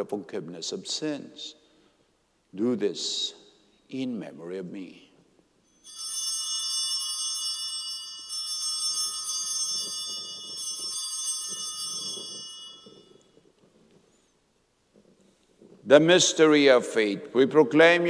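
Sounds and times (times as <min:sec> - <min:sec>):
altar bell ringing: 0:05.6 - 0:13.6.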